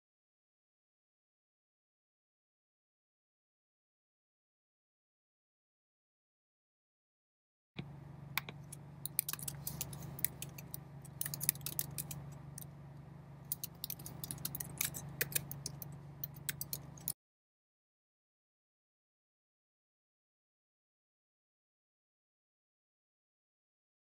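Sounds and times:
low steady hum: 0:07.8 - 0:17.2
computer keyboard typing: 0:08.4 - 0:12.7, 0:13.5 - 0:17.2.

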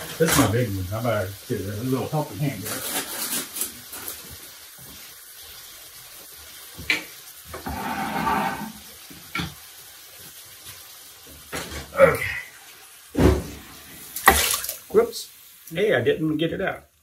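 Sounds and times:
wet food splashing into pot: 0:13.1 - 0:15.0.

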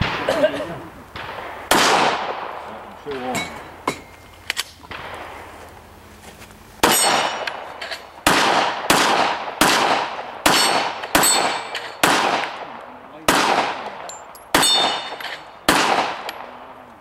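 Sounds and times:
gunshots: 0:00.0 - 0:03.4, 0:04.9 - 0:05.6, 0:06.8 - 0:16.8
metallic clang of steel targets: 0:03.1 - 0:04.8, 0:06.8 - 0:08.2, 0:10.4 - 0:12.1, 0:13.8 - 0:15.6.

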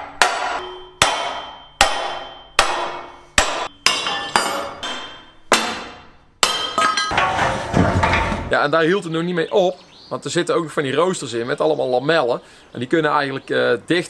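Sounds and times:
hammer striking steel: 0:00.0 - 0:08.5.

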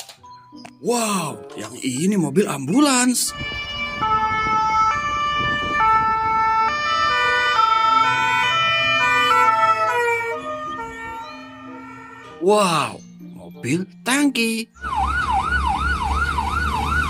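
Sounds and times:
ambulance siren two-tone: 0:03.3 - 0:12.4, 0:14.8 - 0:17.0.

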